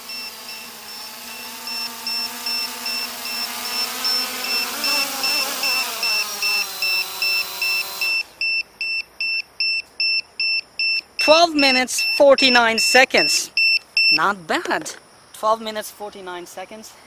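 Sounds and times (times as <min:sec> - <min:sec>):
drone motors and propellers humming: 0:00.0 - 0:08.4
battery alarm beeping: 0:00.0 - 0:14.3.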